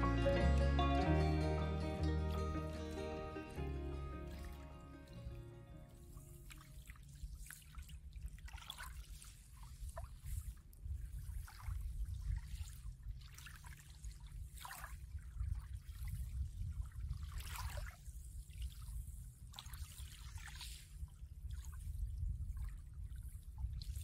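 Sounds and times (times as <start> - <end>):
small waves lapping on sand: 5.9 - 24.0.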